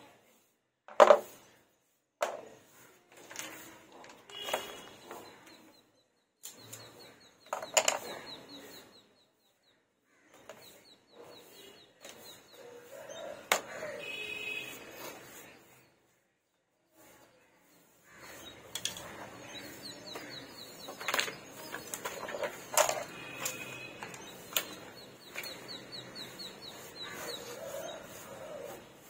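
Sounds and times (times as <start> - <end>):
paintbrush sweeping over wood: 0.0 - 5.4, 10.5 - 29.0
tools set down on wood: 0.9 - 1.3, 7.5 - 8.1, 21.0 - 24.1.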